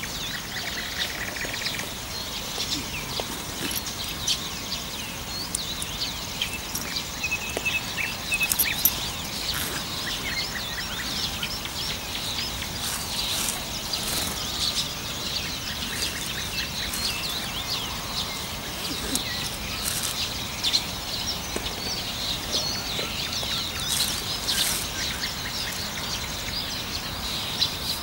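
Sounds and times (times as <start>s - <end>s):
songbirds chirping and trilling: 0.0s - 28.0s.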